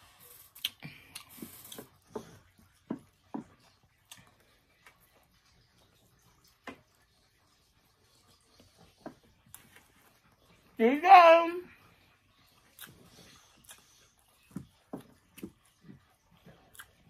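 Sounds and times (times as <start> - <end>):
chewing with wet lip smacks: 12.4 - 17.0.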